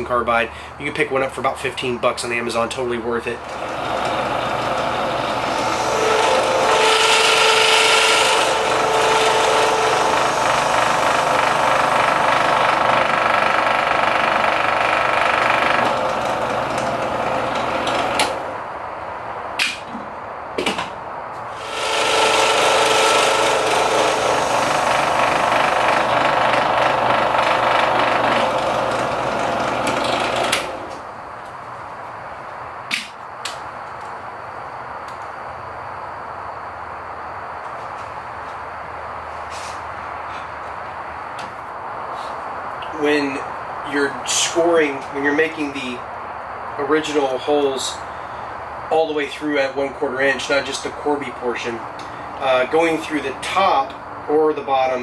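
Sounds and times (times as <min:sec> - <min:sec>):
drill press whine: 0:03.4 - 0:18.7, 0:21.5 - 0:31.2.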